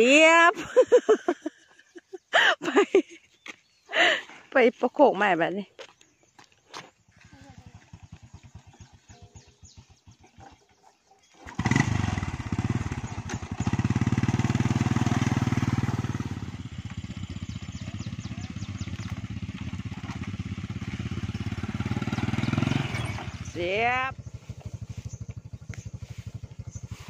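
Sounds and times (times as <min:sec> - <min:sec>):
motorcycle engine idling and revving: 0:02.8 - 0:27.0.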